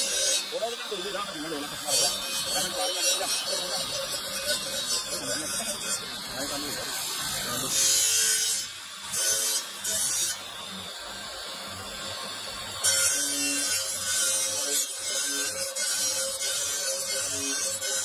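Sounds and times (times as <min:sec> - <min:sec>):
stone grinding on abrasive wheel: 0:00.0 - 0:10.7, 0:12.8 - 0:18.0.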